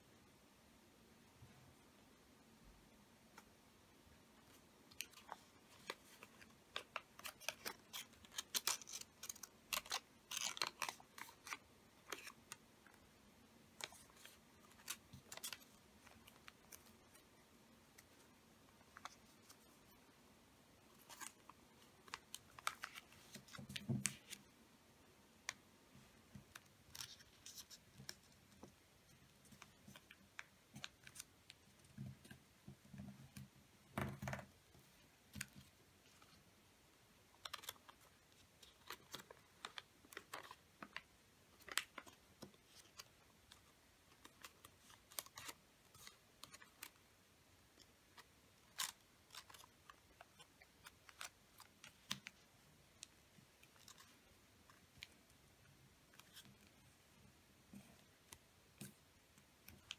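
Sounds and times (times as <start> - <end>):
paper rustling and creasing: 4.5 - 13.0, 37.4 - 47.0, 47.8 - 52.5.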